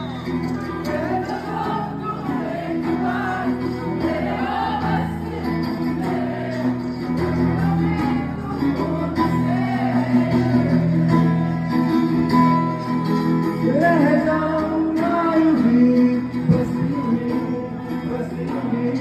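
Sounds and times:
guitar chords: 0.0 - 19.0
person singing: 13.6 - 19.0.

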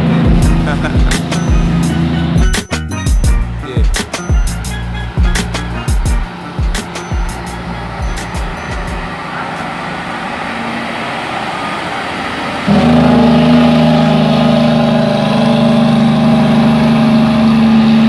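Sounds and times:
diesel truck engine passing: 0.0 - 18.0.

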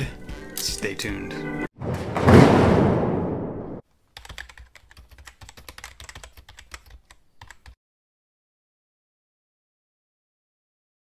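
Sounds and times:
computer keyboard typing: 4.2 - 7.8.

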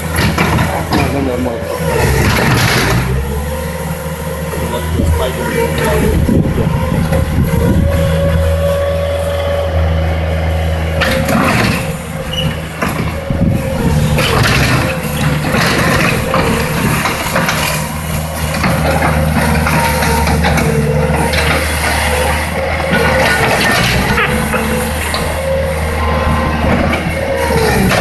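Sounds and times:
rattling and scraping: 0.0 - 3.6, 10.9 - 25.9
diesel engine running: 0.0 - 28.0.

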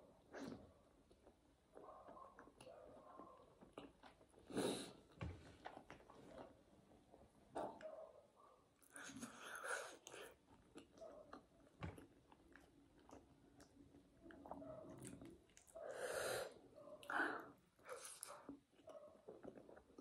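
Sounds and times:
person chewing and smacking: 3.6 - 4.5, 8.8 - 15.8, 17.8 - 20.0.

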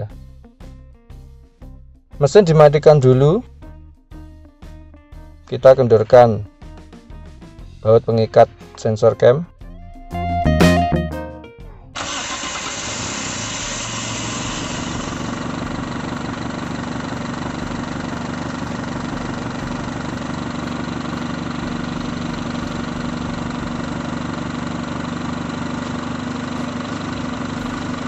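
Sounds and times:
car engine idling: 12.0 - 28.0.

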